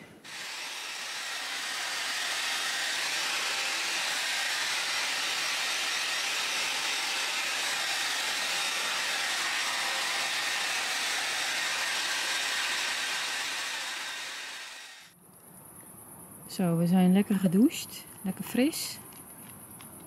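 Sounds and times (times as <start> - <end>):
shower water spray hissing: 0.0 - 15.1.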